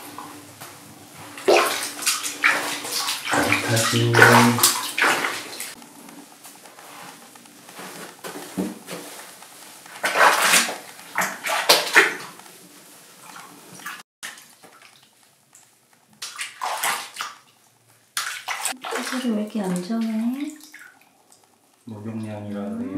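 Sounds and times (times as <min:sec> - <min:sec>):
bathwater splashing: 0:00.0 - 0:22.8.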